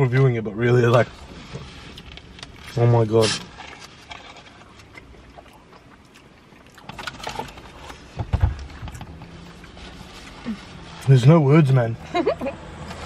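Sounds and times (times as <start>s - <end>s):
chewing crunchy food: 3.4s - 8.1s.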